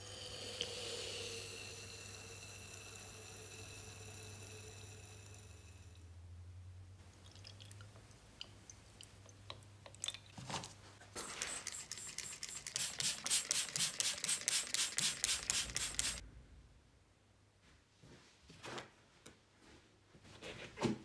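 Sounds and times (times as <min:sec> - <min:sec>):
water trickling into bottle: 0:07.1 - 0:10.4
spray bottle hissing: 0:11.1 - 0:16.2.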